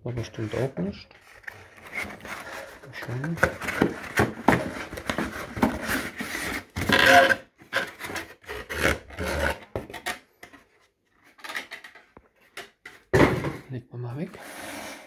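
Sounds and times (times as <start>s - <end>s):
cardboard boxes scraping: 0.2s - 9.8s, 14.4s - 15.0s.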